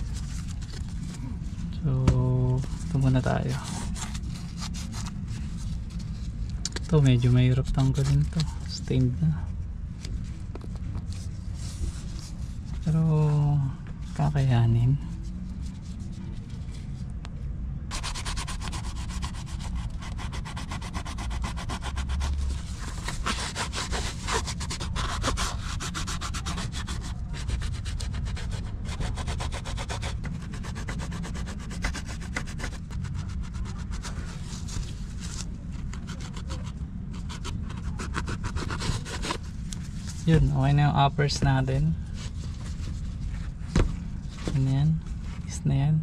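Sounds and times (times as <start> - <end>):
brush scrubbing a sneaker: 17.9 - 39.4.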